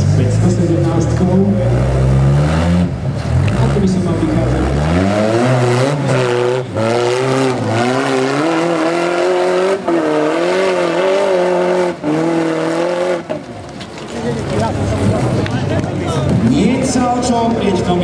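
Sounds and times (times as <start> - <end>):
buggy engine revving hard: 0.0 - 13.5.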